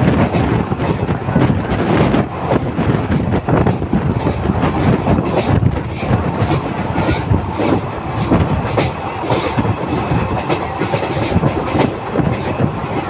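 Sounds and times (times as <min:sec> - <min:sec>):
train wheels rumbling on rail: 0:00.0 - 0:13.0.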